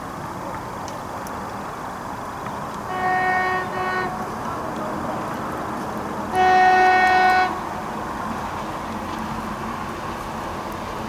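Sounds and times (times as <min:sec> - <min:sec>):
train horn: 0:02.9 - 0:04.4, 0:06.3 - 0:07.8.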